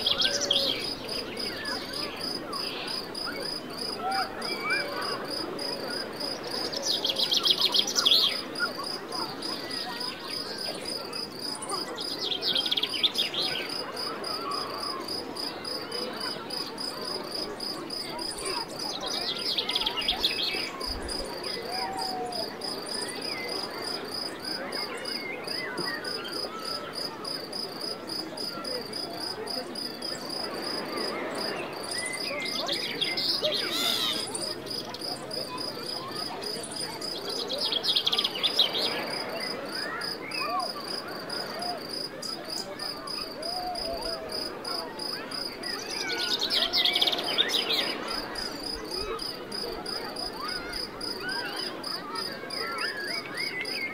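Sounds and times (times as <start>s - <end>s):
crickets chirping: 14.8s - 49.6s
bird calls: 32.0s - 34.4s.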